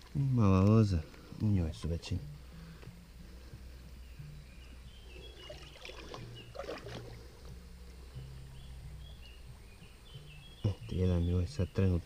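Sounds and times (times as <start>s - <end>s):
stream water sloshing and splashing: 5.2s - 7.5s.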